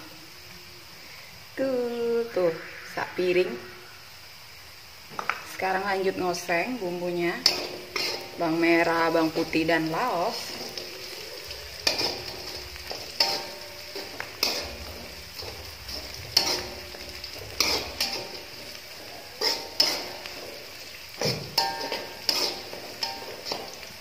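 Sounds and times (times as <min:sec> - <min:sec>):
food sizzling in oil: 0:00.0 - 0:24.0
metal spatula scraping a wok: 0:07.0 - 0:24.0.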